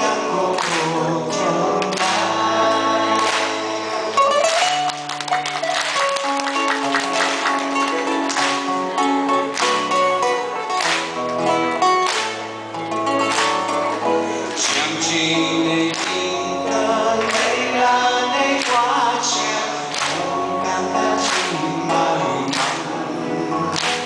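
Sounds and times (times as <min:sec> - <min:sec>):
man singing: 0:00.0 - 0:04.4, 0:14.3 - 0:24.0
acoustic guitar: 0:00.0 - 0:24.0.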